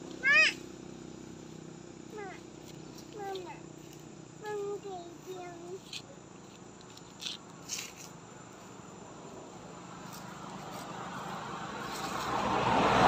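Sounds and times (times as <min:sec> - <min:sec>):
motorbike approaching: 0:00.0 - 0:13.0.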